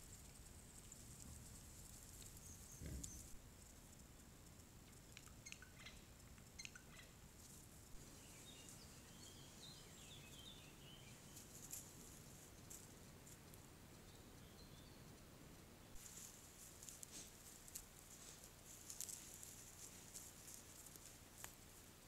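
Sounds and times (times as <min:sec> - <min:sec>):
light ticks: 0:04.0 - 0:07.6
distant bird chirps: 0:05.0 - 0:07.2, 0:07.9 - 0:11.8, 0:13.9 - 0:15.9.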